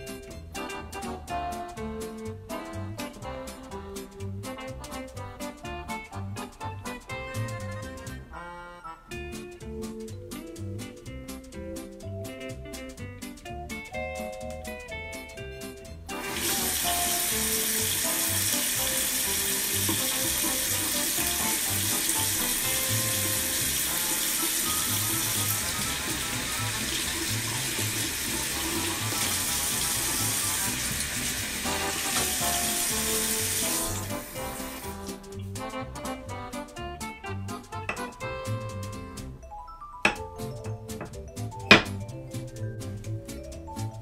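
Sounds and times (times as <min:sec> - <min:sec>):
background music: 0:00.0 - 0:44.0
faucet running into sink: 0:16.2 - 0:35.0.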